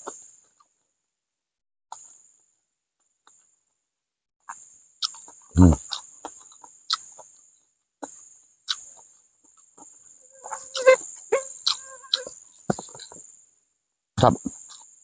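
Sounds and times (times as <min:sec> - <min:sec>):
insect buzz: 0:04.5 - 0:13.5
lip smacks and chewing: 0:05.0 - 0:07.3, 0:08.7 - 0:09.1, 0:11.6 - 0:13.2
short pitched animal calls: 0:10.3 - 0:12.4.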